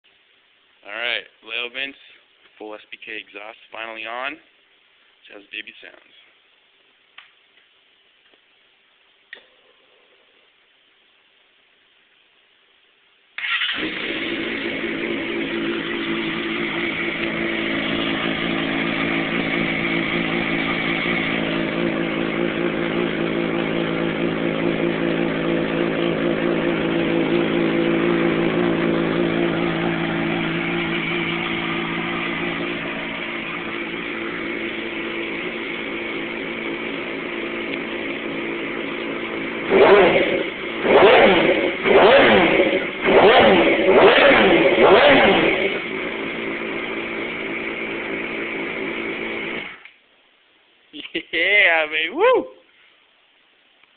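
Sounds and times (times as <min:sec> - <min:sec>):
motorcycle engine revving: 0:13.4 - 0:49.8
motorcycle engine idling: 0:13.8 - 0:49.8.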